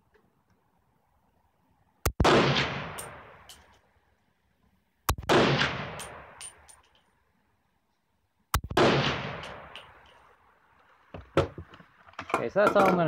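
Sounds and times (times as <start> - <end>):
rifle shots with echo: 2.1 - 3.7, 5.1 - 6.7, 8.6 - 10.0.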